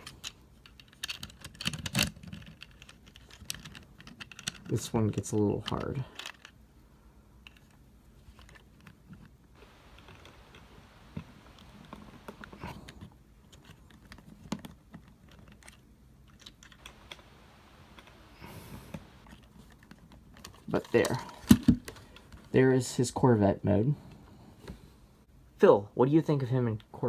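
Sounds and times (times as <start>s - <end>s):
plastic toy parts clicking: 0.0s - 6.6s.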